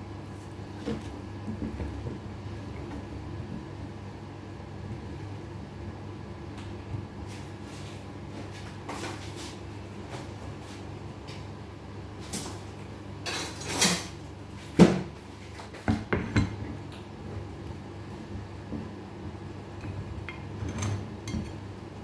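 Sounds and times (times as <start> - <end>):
low steady hum: 0.0 - 22.0
dishes and utensils clattering: 13.2 - 14.2, 20.3 - 21.6.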